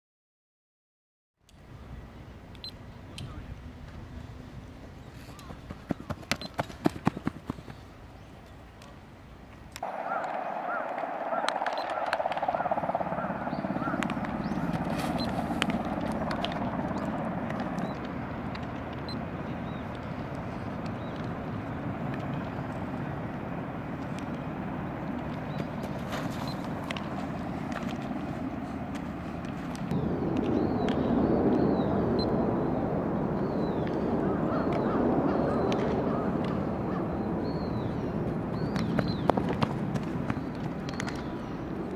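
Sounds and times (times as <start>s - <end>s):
outdoor background noise: 1.4s - 41.9s
birds chirping: 2.0s - 41.9s
sharp clicks: 9.7s - 13.4s, 14.0s - 19.2s.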